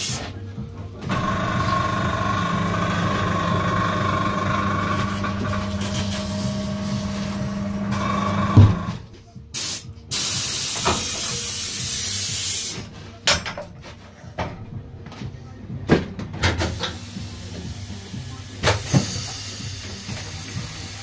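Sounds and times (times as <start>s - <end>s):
compressed air hissing: 0.0s - 0.3s, 4.8s - 7.8s, 9.6s - 12.8s, 16.6s - 21.0s
tyre changer hum: 1.1s - 9.0s.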